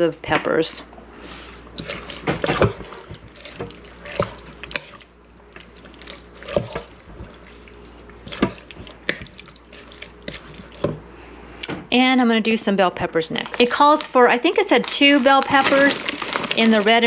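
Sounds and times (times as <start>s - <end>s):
wet squelching and scraping: 1.2s - 11.0s, 14.8s - 17.0s
wooden spoon stirring wet food: 1.2s - 11.1s, 13.4s - 17.0s.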